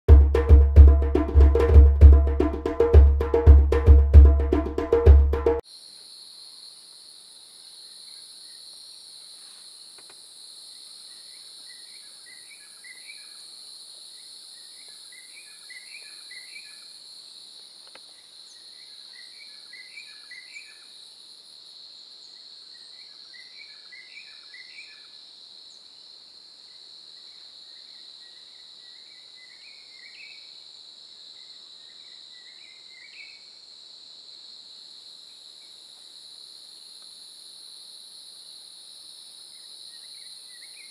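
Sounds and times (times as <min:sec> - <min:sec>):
call of quick rising notes: 0:00.1 - 0:05.6
insect chorus: 0:05.6 - 0:40.9.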